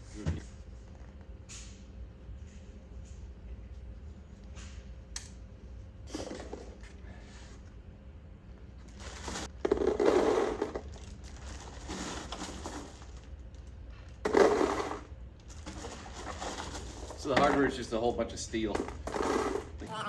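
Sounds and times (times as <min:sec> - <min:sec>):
steel hardware shifting in box: 0:09.0 - 0:13.2, 0:14.3 - 0:17.8.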